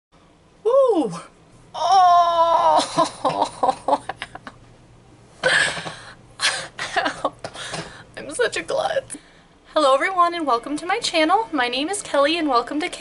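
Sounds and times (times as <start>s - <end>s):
woman laughing: 2.5s - 4.6s, 6.4s - 7.4s.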